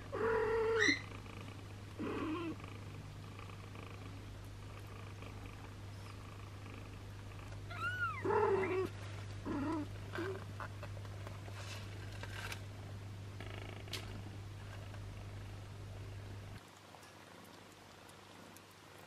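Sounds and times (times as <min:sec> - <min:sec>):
cat purring: 0:00.0 - 0:10.9, 0:12.8 - 0:16.6, 0:17.2 - 0:19.0
cat mewing and crying: 0:00.1 - 0:01.0, 0:07.7 - 0:10.4.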